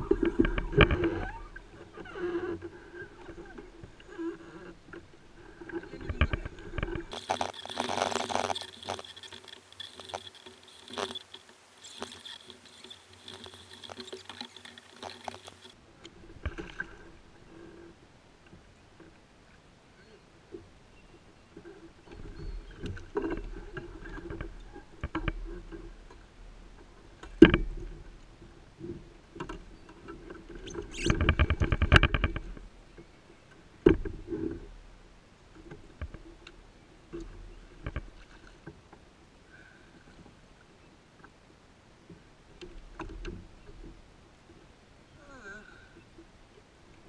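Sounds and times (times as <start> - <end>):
spinning reel turning: 7.1 - 15.8.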